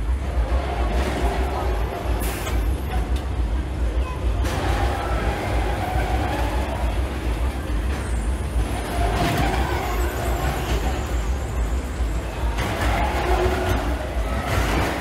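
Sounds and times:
roller coaster car on track: 0.0 - 15.0.

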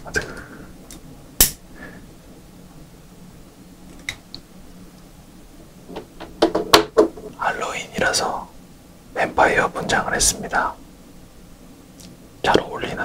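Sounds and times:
sharp click: 1.4 - 1.6.

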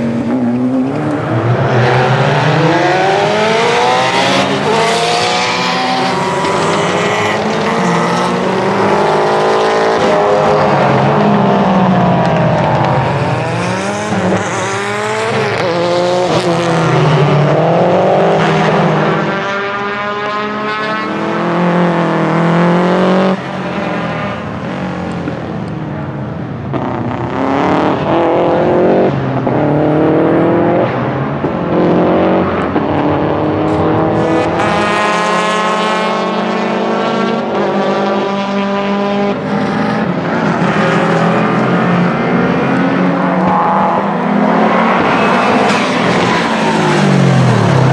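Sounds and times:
rally car engine revving: 0.0 - 26.0, 26.7 - 47.9.

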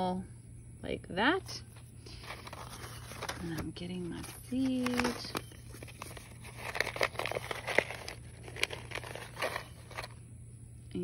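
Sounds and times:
seed packet crinkling: 2.0 - 10.2.

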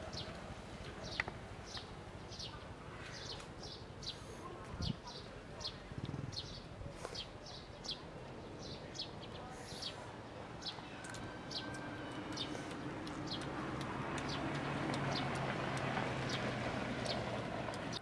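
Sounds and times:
small birds chirping: 0.1 - 18.0
low engine hum: 9.2 - 18.0.

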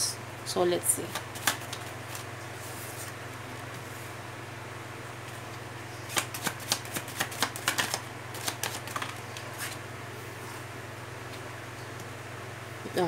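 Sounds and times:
cards being shuffled: 1.0 - 2.3, 6.1 - 9.8.

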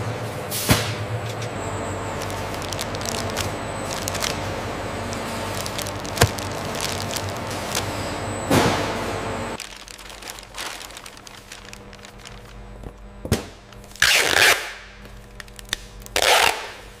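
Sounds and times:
paper crinkling: 1.2 - 8.8, 9.6 - 13.1
packing tape tearing screech: 13.9 - 14.8, 15.6 - 16.8.

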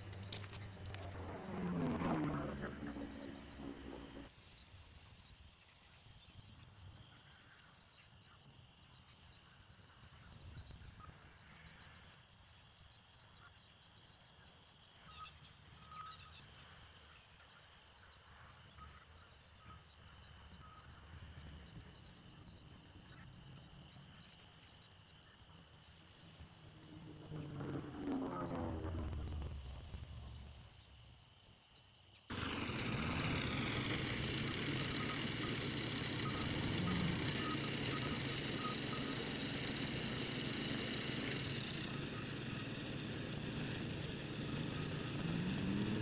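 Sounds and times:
crickets chorus: 0.0 - 46.0
low rumble: 0.6 - 4.3.

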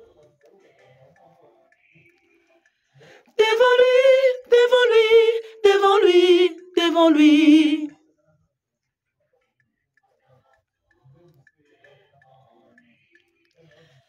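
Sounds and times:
person singing unaccompanied: 3.1 - 8.0.

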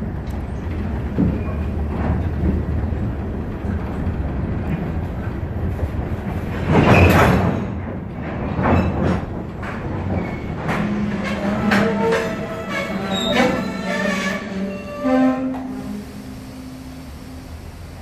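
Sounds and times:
train wheels rumbling on rails: 0.0 - 18.0
high wheel squeal: 12.0 - 16.8.

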